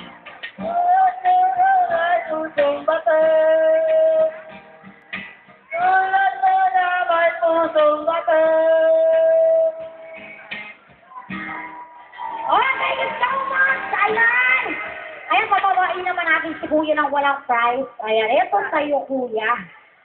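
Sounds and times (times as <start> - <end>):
music: 0.0 - 17.5.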